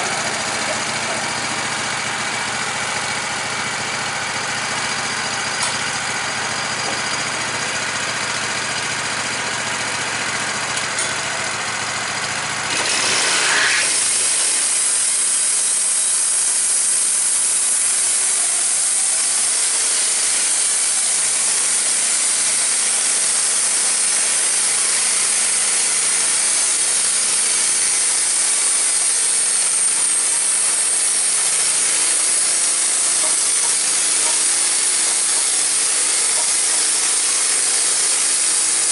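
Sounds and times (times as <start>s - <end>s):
band saw blade cutting log: 0.0s - 3.4s, 12.7s - 38.9s
sawmill engine idling and revving: 0.0s - 38.9s.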